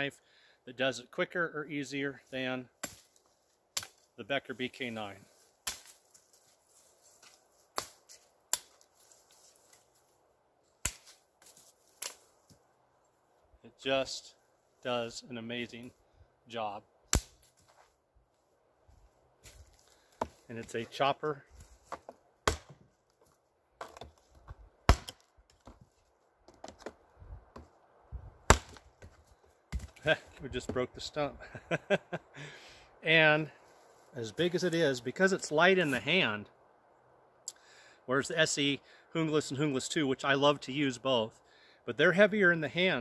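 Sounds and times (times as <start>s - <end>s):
knife chopping through twigs: 2.8s - 4.1s, 5.6s - 6.1s, 7.2s - 8.9s, 10.8s - 12.3s, 17.1s - 17.6s, 21.8s - 22.8s, 28.5s - 30.0s.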